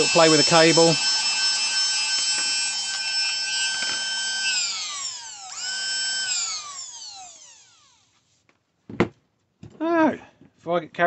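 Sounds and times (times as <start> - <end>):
clipper motor whine: 0.0 - 8.0.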